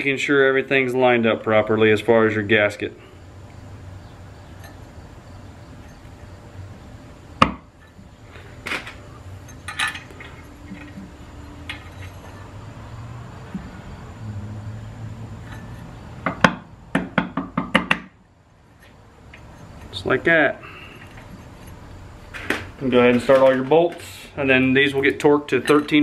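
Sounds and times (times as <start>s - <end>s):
sharp metallic clicks and clinks: 4.5s - 5.0s, 8.8s - 12.6s, 25.1s - 26.0s.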